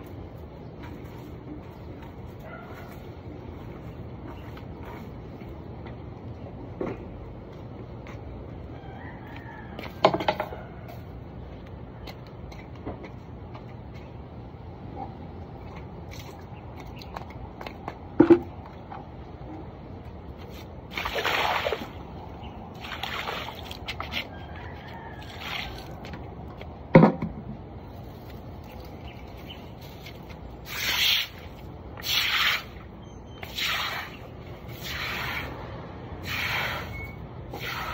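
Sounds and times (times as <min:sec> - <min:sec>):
broom sweeping pavement: 0:20.4 - 0:22.0, 0:27.9 - 0:37.9.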